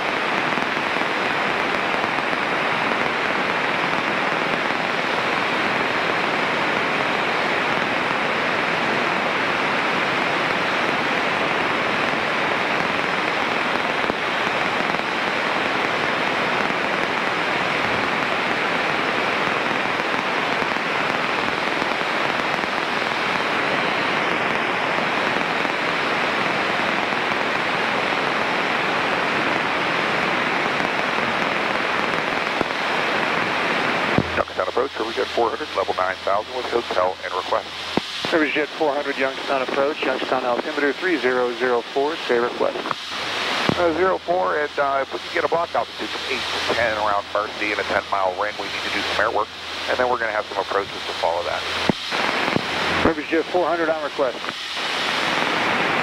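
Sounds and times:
radio static hiss: 0.0s - 56.0s.

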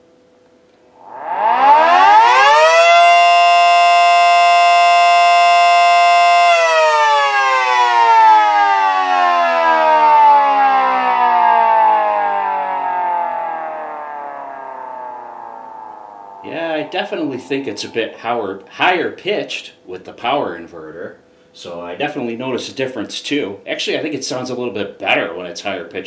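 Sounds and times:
motor-driven siren wailing: 0.8s - 18.2s.

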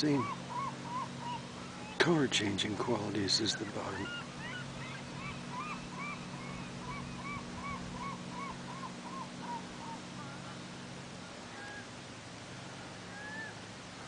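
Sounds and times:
gull calling: 0.0s - 12.0s, 13.0s - 13.7s
low hum: 0.0s - 14.0s.

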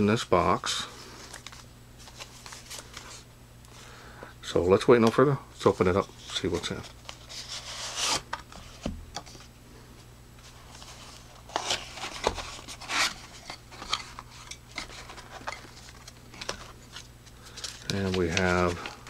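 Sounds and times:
packaging taps scrapes and rustles: 10.7s - 19.0s.

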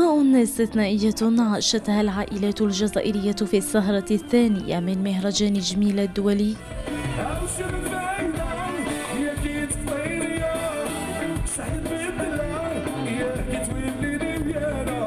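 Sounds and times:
band playing: 5.4s - 15.0s
man singing into a microphone: 7.0s - 15.0s.

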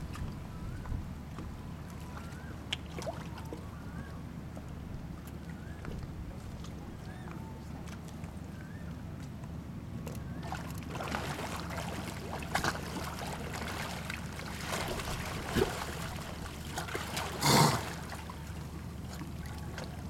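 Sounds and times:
stingrays splashing in shallow water: 1.7s - 4.2s, 10.2s - 20.0s.

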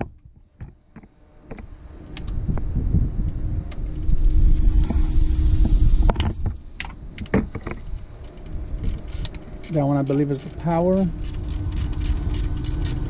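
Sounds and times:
low rumble on microphone: 0.0s - 13.0s
faint high insect buzz: 3.8s - 7.7s.

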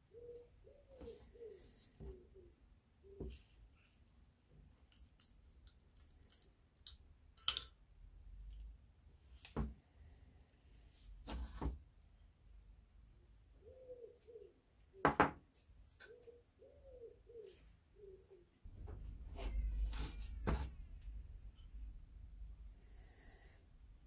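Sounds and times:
small metal parts clinking: 4.9s - 7.8s.

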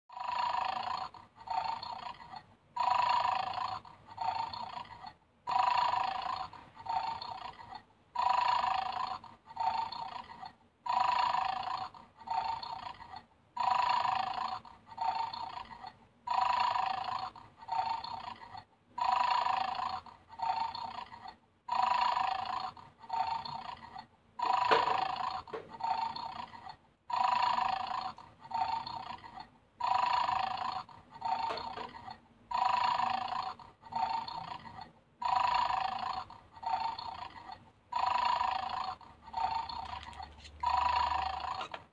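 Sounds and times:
recorded snoring from toy speaker: 0.1s - 41.9s.

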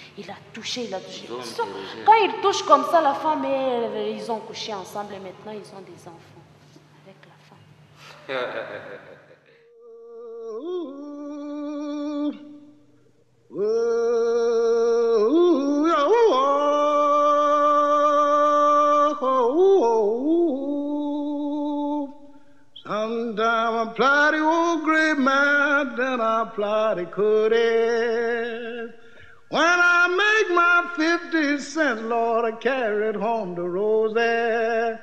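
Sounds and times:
person singing unaccompanied blues: 9.8s - 12.5s, 13.5s - 22.2s, 22.8s - 35.0s.

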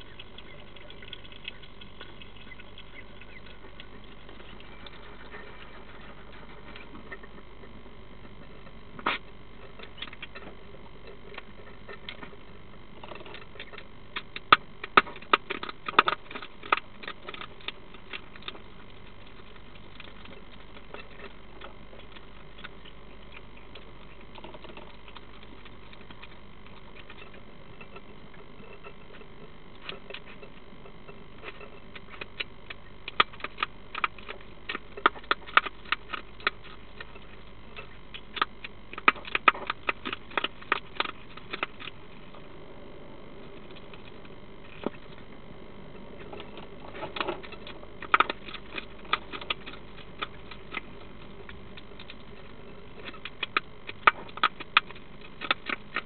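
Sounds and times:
hedgehog crunching food: 0.0s - 56.0s.

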